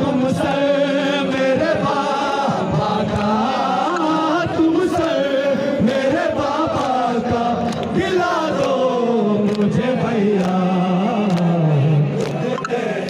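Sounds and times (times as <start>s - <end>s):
men chanting in chorus: 0.0s - 13.0s
rhythmic chest-beating: 0.0s - 13.0s.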